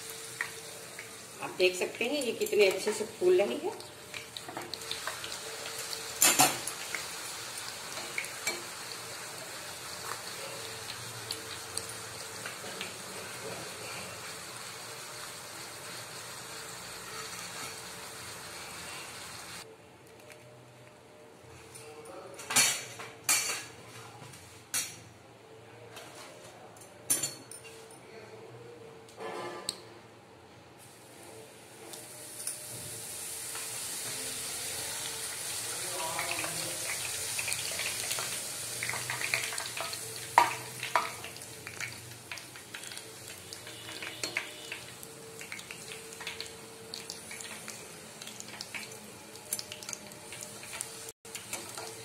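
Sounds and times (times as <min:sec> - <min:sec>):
deep-frying sizzle with crackles: 0:00.0 - 0:19.7, 0:30.8 - 0:52.0.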